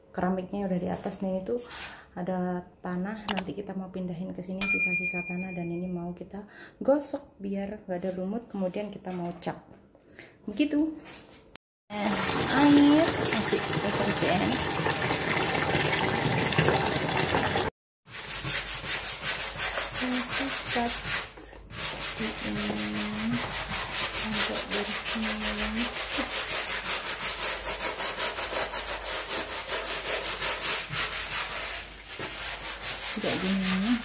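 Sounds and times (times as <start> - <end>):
water pouring into plastic bucket: 11.9 - 17.7
brush scrubbing wet concrete: 18.1 - 34.0.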